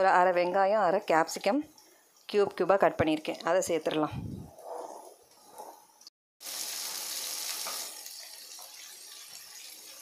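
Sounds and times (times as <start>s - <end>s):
vegetables sizzling in hot oil: 6.4s - 10.0s.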